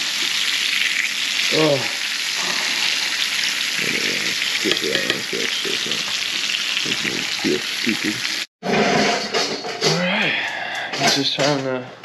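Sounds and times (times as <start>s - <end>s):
fish frying in hot oil: 0.0s - 8.5s.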